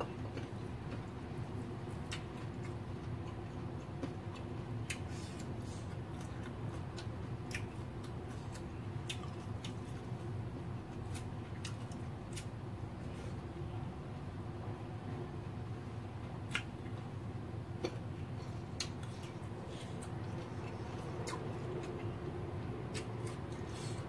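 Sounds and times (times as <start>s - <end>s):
chewing with mouth open: 0.0s - 10.3s, 10.9s - 12.5s, 17.8s - 24.0s
steady low hum: 0.0s - 24.0s.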